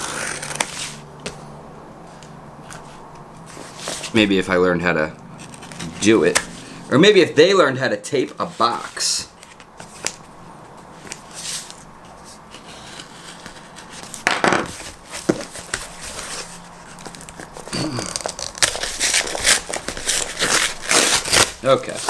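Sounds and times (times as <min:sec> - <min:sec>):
knife scraping through packing tape: 0:00.0 - 0:01.0, 0:18.0 - 0:22.0
cardboard crinkling and tearing: 0:14.8 - 0:22.0.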